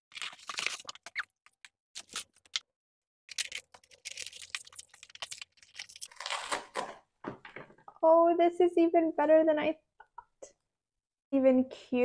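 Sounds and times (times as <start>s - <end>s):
cardboard and plastic wrap crackling: 3.3s - 7.0s.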